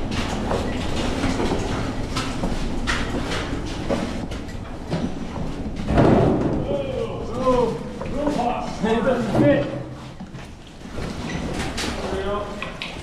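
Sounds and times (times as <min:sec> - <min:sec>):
metal clanks and knocks: 0:00.0 - 0:06.7.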